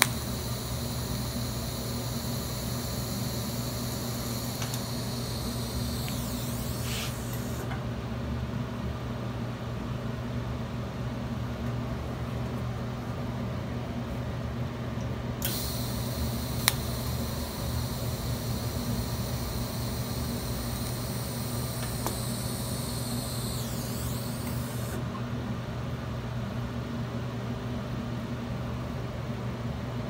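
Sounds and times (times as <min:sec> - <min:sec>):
welding arc whine and hiss: 0:00.0 - 0:07.8, 0:15.4 - 0:25.0
low machine hum: 0:00.0 - 0:08.3, 0:15.3 - 0:25.2.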